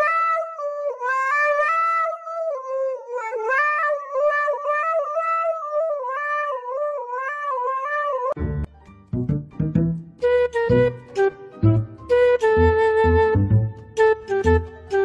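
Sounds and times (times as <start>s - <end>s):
dog howling into microphone: 0.0s - 8.4s.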